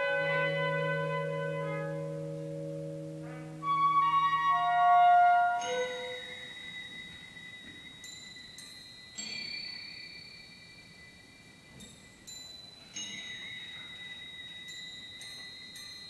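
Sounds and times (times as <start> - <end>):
high metal percussion notes ringing: 0.0 - 16.0.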